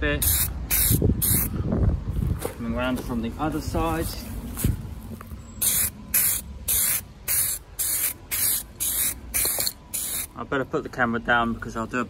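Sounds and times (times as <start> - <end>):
spray can hissing: 0.2 - 1.5, 5.6 - 10.3.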